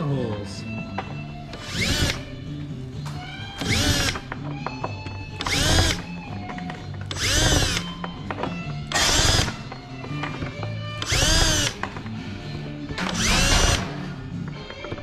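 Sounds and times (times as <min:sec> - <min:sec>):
power drill drilling into metal: 0:01.6 - 0:02.2, 0:03.6 - 0:04.3, 0:05.4 - 0:06.1, 0:07.1 - 0:07.9, 0:08.9 - 0:09.6, 0:11.0 - 0:11.8, 0:13.0 - 0:13.9.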